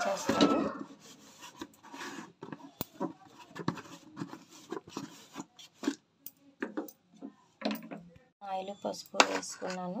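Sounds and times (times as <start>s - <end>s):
kitchen rubs and scrapes: 0.0s - 6.1s.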